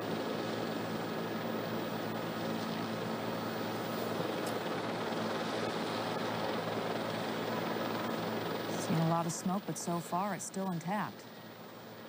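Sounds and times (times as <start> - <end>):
helicopter engine and rotors: 0.0 - 12.0.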